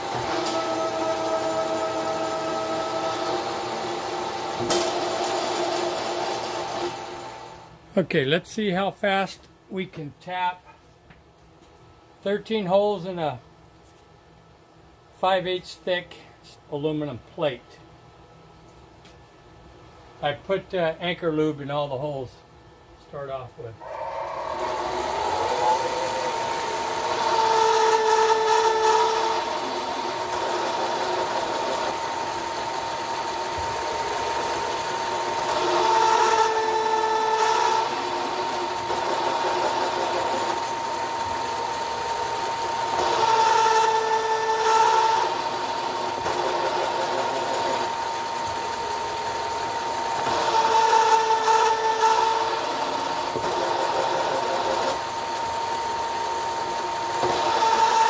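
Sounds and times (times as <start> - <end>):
tapping head cutting metal: 0.0 - 7.0, 24.6 - 41.2, 42.8 - 48.7, 50.0 - 55.2, 56.7 - 58.0
milling machine whine: 0.0 - 7.8, 23.8 - 58.0.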